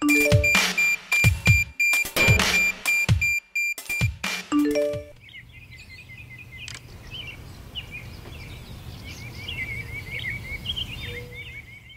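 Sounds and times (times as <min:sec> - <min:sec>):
small birds chirping: 0:05.2 - 0:11.9.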